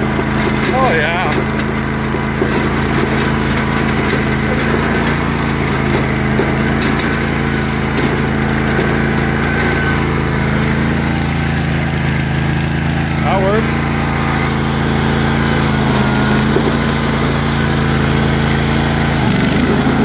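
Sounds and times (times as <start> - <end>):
lawn tractor engine running: 0.0 - 20.0.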